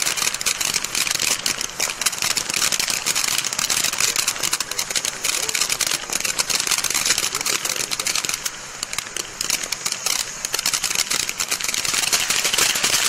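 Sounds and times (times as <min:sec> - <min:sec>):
firework fountain crackling: 0:00.0 - 0:13.0.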